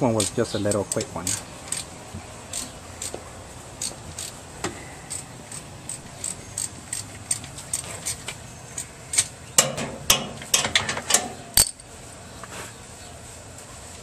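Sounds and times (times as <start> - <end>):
hand tool clicking on metal: 0.2 - 1.9
sharp metal knocks: 9.6 - 11.8.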